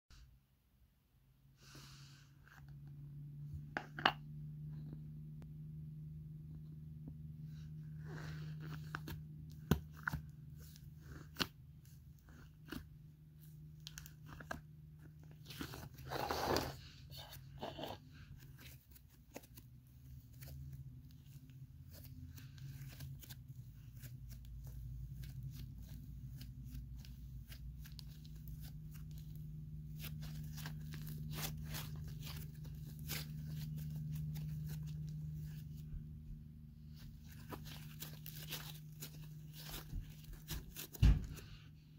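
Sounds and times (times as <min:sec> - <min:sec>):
slime crackling: 0:21.2 - 0:35.6.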